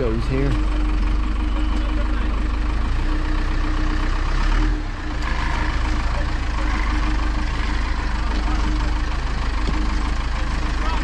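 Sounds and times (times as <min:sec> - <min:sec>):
heavy vehicle engine idling: 0:00.0 - 0:11.0.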